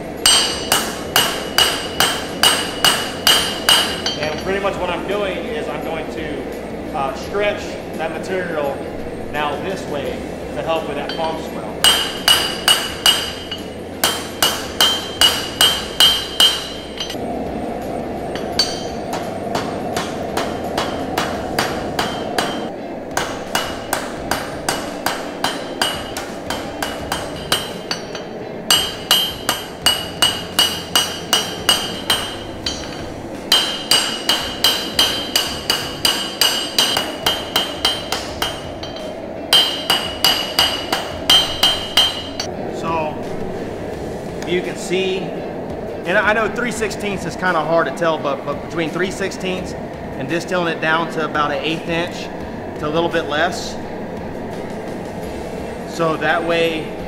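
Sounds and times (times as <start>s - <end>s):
hammer striking steel on anvil: 0.2s - 4.8s, 11.0s - 17.2s, 18.3s - 42.5s.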